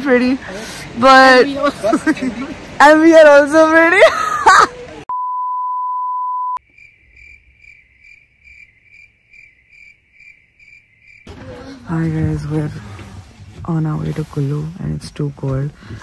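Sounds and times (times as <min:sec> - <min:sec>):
electronic censor bleep: 0:05.1 - 0:06.6
cricket chirping sound effect: 0:06.6 - 0:11.3.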